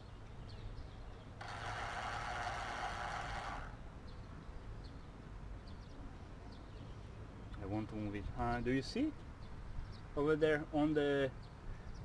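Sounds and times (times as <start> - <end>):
electric gear motor whirring: 1.4 - 3.8.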